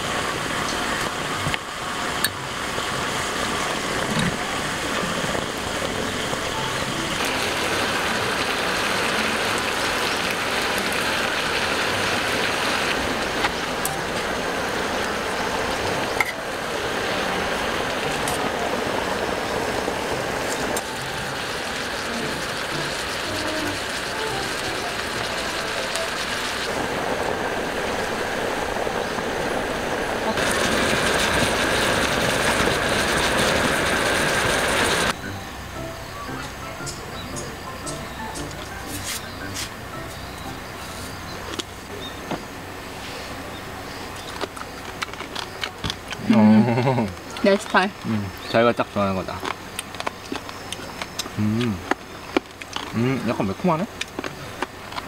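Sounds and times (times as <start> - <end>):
meat sizzling in a hot pan: 2.0 - 18.3, 19.1 - 28.9.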